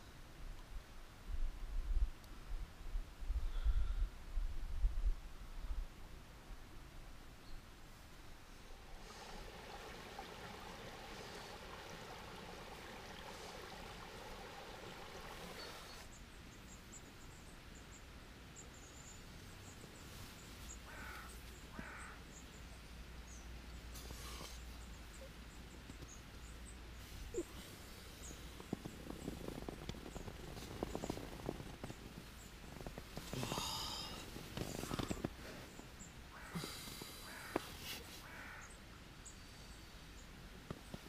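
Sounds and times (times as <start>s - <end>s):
faint running water: 8.4s - 16.8s, 19.9s - 22.9s
short bird calls: 20.7s - 22.5s, 36.3s - 38.8s.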